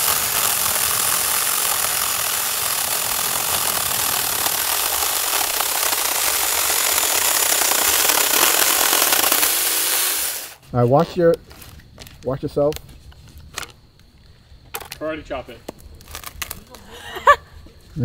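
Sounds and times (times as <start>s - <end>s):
electric chainsaw cutting log: 0.0s - 10.6s.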